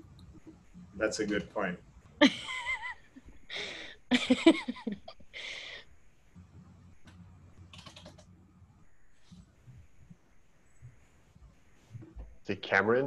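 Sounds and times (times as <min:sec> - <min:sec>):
faint low hum: 0:00.0 - 0:13.0
person laughing: 0:02.2 - 0:05.8.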